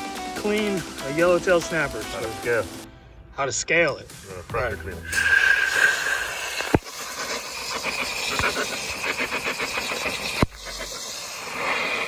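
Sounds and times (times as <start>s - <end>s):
high-pressure water jet hissing: 5.0s - 12.0s.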